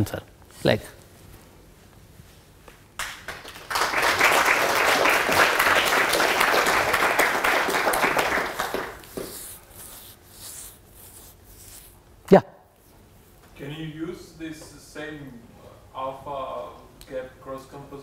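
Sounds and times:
audience applauding: 3.0 - 9.1.

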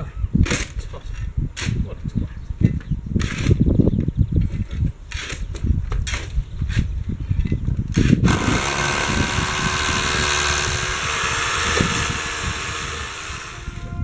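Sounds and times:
power drill boring into masonry: 8.3 - 13.9.

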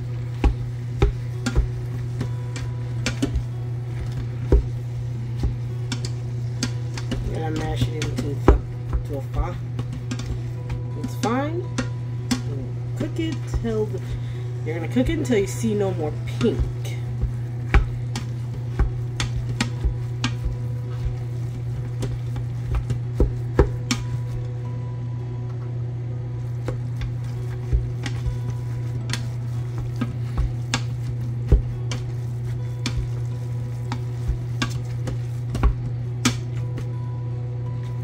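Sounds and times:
meat sizzling: 0.0 - 7.6, 26.4 - 36.6
steady low hum: 0.0 - 38.0.

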